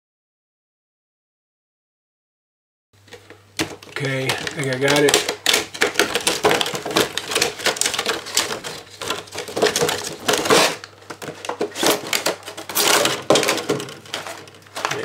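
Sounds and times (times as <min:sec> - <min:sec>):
plastic packaging crackling: 0:03.0 - 0:15.0.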